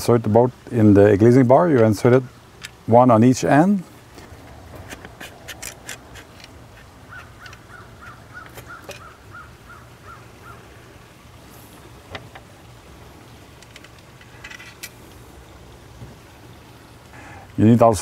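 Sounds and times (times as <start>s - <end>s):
bird calling: 4.2s - 10.9s.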